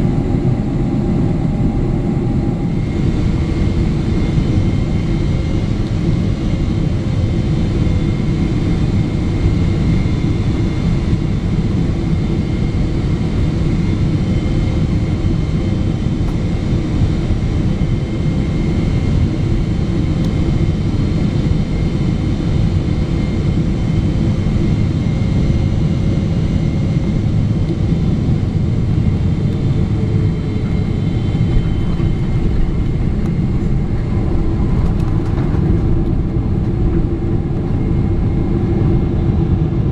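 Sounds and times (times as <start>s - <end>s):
deep roar of airflow and engine: 0.0s - 39.9s
faint whining tones: 27.6s - 39.2s.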